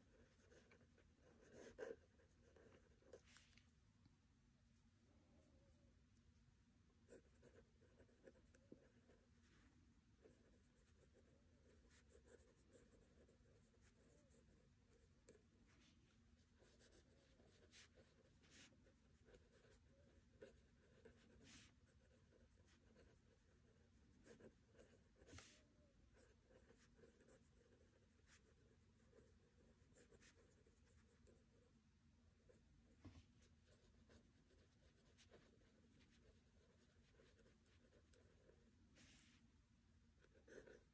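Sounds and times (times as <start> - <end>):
pen scratching on paper: 0.0 - 3.5, 7.1 - 9.2, 10.2 - 15.4, 16.4 - 31.6, 33.1 - 38.6, 40.2 - 40.9.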